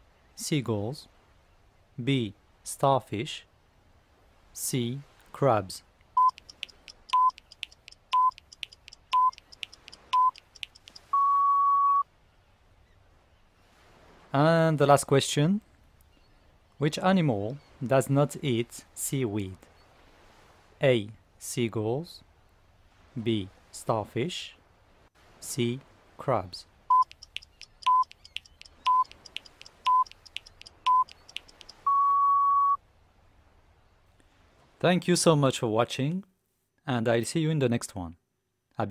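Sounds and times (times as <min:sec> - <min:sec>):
rapid clock ticking: 0:06.2 - 0:11.1, 0:26.9 - 0:31.8
longer higher beep: 0:06.2 - 0:12.0, 0:26.9 - 0:32.8
short electronic beeps: 0:06.2 - 0:12.0, 0:26.9 - 0:32.8.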